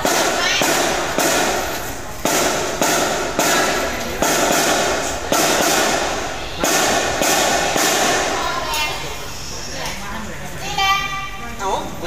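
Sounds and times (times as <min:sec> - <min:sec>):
marching drums with cymbals: 0:00.0 - 0:08.7.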